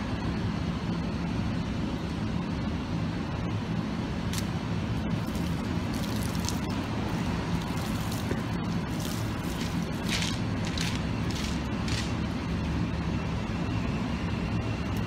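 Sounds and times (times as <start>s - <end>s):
traffic rumble: 0.0s - 15.0s
water splashing on paving: 5.3s - 12.1s.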